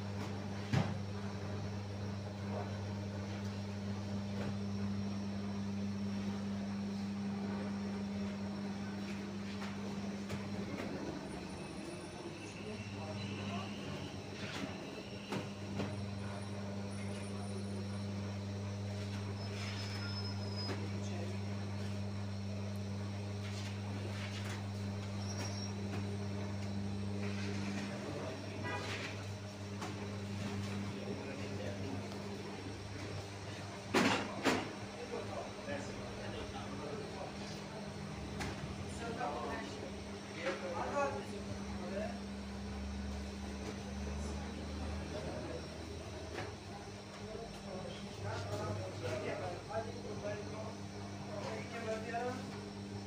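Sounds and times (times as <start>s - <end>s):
electric motor hum: 0.0s - 12.0s, 15.5s - 33.6s.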